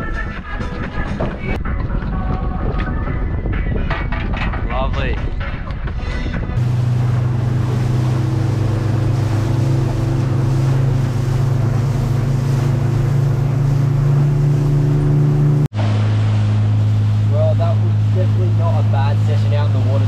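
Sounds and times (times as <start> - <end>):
wind and water rushing: 0.7 - 20.0
motorboat engine droning: 6.6 - 20.0.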